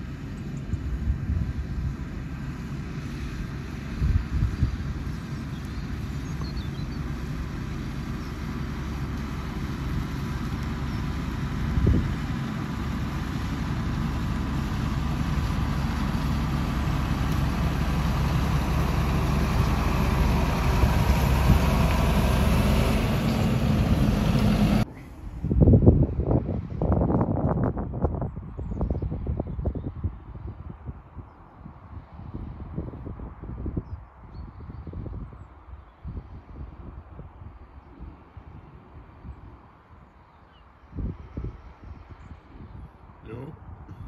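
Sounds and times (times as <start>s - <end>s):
tractor diesel engine running: 0.0s - 25.6s
wind buffeting microphone: 0.0s - 44.0s.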